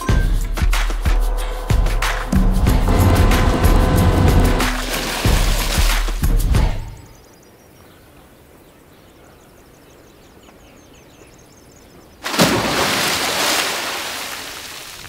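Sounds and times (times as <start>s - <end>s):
loud pool water splash: 3.0s - 6.4s, 12.2s - 15.0s
faint birds chirping: 6.8s - 12.2s.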